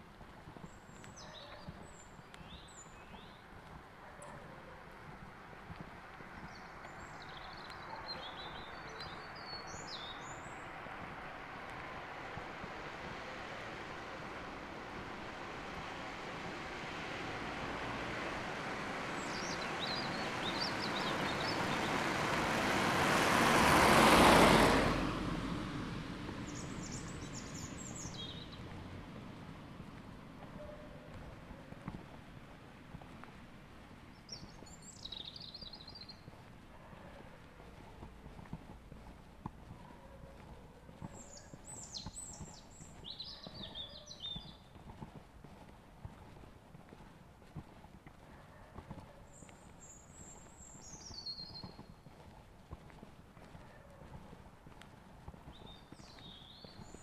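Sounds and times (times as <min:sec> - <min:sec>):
footsteps on hard surface: 0:00.1 - 0:07.1, 0:27.2 - 0:57.0
bird chirping: 0:00.6 - 0:03.4, 0:06.4 - 0:10.8, 0:19.1 - 0:22.1, 0:26.4 - 0:28.7, 0:34.2 - 0:37.2, 0:39.9 - 0:44.8, 0:49.2 - 0:52.2, 0:55.5 - 0:57.0
car passing by: 0:05.4 - 0:33.2.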